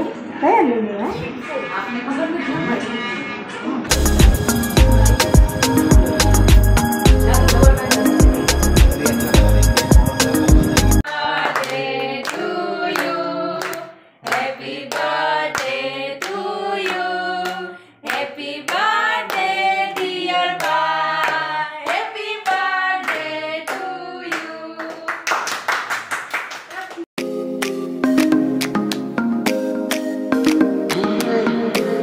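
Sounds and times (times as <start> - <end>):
group singing a celebration song: 7.0 - 25.3, 30.9 - 32.0
hands clapping in time: 24.8 - 31.9.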